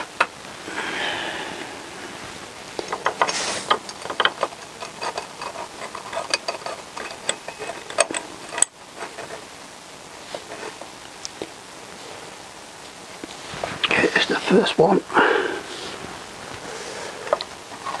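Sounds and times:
small metal parts clicking: 2.9 - 8.7.

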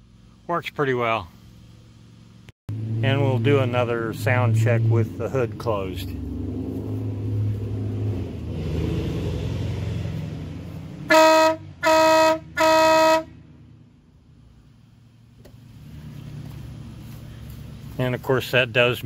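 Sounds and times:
truck air horn blasts: 11.0 - 13.5.

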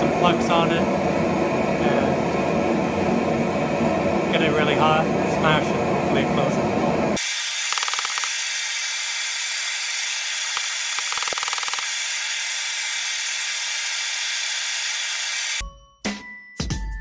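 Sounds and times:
gas forge burner roaring: 0.0 - 7.7, 8.4 - 15.6
rapid clicking: 7.7 - 8.4, 10.3 - 12.7.

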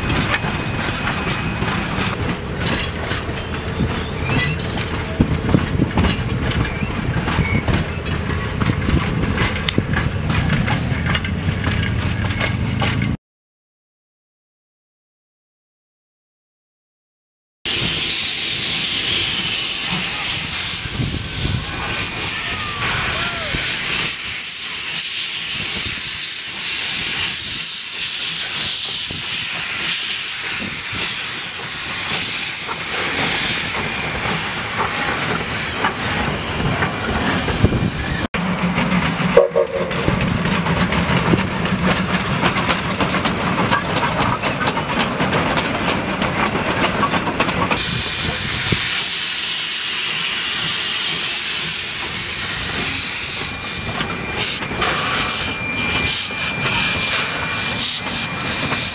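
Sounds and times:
steam locomotive hissing steam: 0.0 - 2.2, 17.7 - 58.9.

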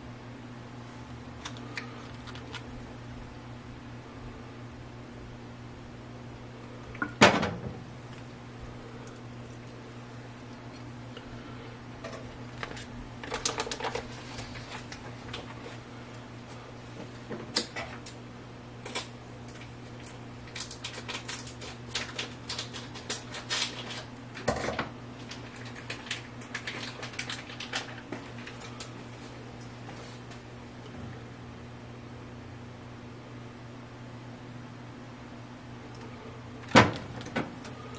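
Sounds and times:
steady low hum: 0.0 - 37.9
kitchen items clicking and rustling: 12.0 - 15.6, 18.8 - 28.9.

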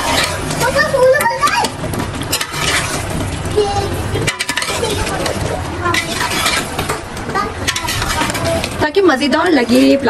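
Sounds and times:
metal ladle scraping a pot: 0.0 - 0.6, 2.1 - 3.4, 4.1 - 8.9.

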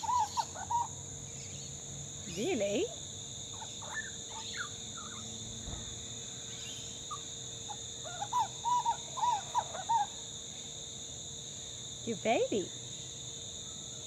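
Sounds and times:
bird chirping: 0.0 - 2.8, 3.5 - 5.4.

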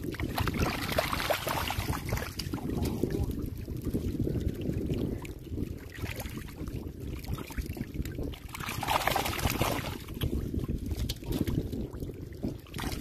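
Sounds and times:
wind rumble on microphone: 0.0 - 13.0
hands splashing in water: 8.6 - 10.0.

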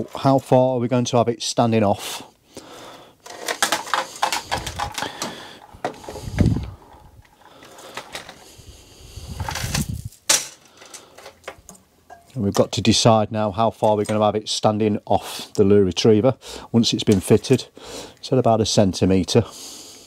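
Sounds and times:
small metal parts rattling: 3.2 - 8.4, 9.2 - 12.3.

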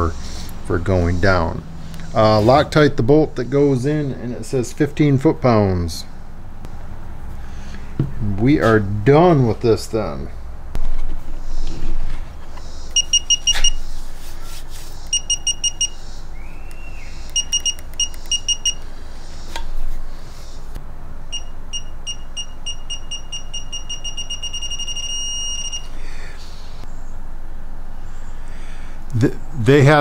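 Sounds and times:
digital torque wrench beeping: 12.9 - 13.8, 15.0 - 16.0, 16.7 - 18.8, 21.3 - 26.0
sharp clicks: 16.6 - 18.9.

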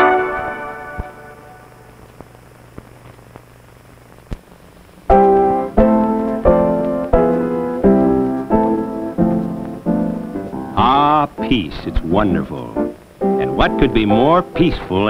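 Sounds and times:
piano chords: 0.0 - 2.0, 5.1 - 15.0
film soundtrack hiss and hum: 0.0 - 15.0
soundtrack clicks: 5.1 - 15.0.

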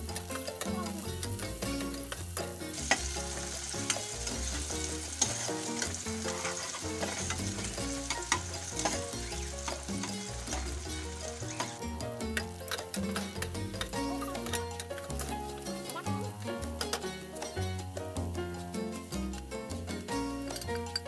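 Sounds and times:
onions sizzling in a pot: 0.0 - 21.0
metal spoon scraping a pot: 5.1 - 16.1.

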